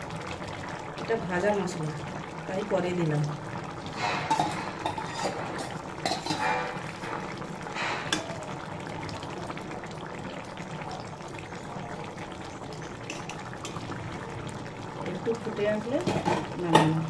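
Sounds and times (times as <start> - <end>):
curry bubbling: 0.0 - 17.0
metal spatula scraping a pan: 3.9 - 8.3.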